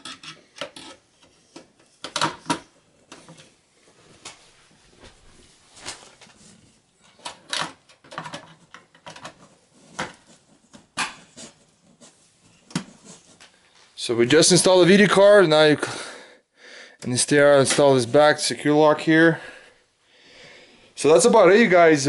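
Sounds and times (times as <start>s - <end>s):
plastic and metal clicks and knocks: 0.0s - 3.4s.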